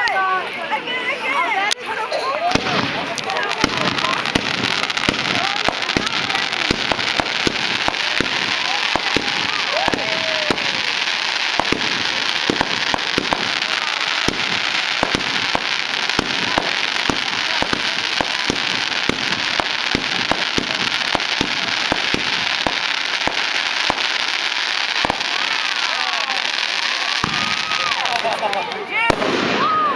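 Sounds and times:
fireworks crackling: 0.0 - 29.9
fireworks bangs: 2.1 - 29.9.

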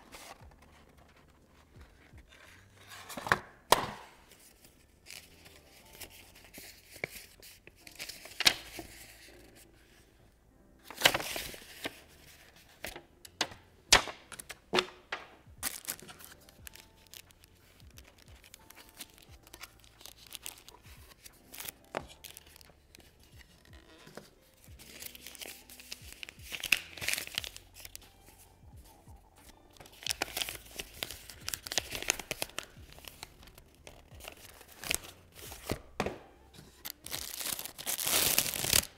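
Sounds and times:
paper rustling: 0.0 - 10.0, 10.8 - 29.0, 29.7 - 38.9
plastic bag crinkling: 15.6 - 23.2, 36.8 - 38.9.

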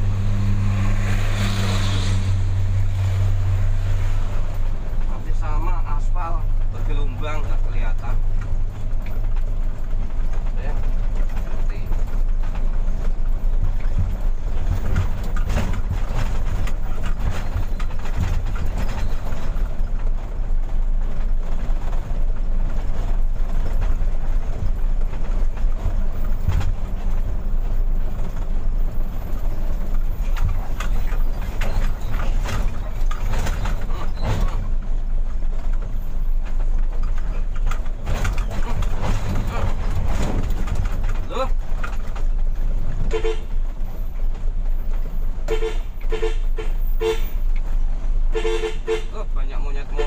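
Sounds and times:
truck diesel engine running: 0.0 - 49.1
short rattles and knocks: 6.0 - 46.1.

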